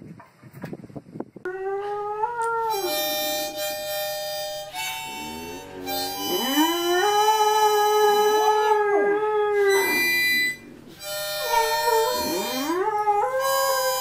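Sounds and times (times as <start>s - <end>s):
dog howling: 1.5s - 4.1s, 4.7s - 14.0s
harmonica playing chords: 2.6s - 8.8s, 9.6s - 14.0s.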